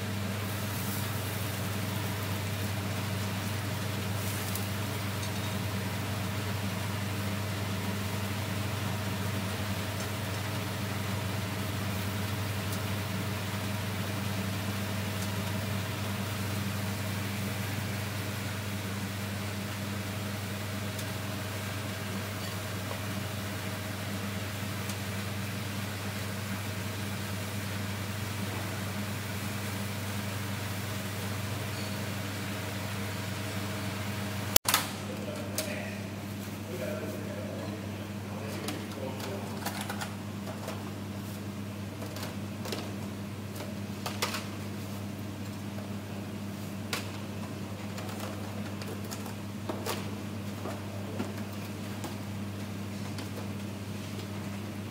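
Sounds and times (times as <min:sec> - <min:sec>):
gas grill hissing: 0:00.0 - 0:42.0
extraction fan running: 0:00.0 - 0:54.9.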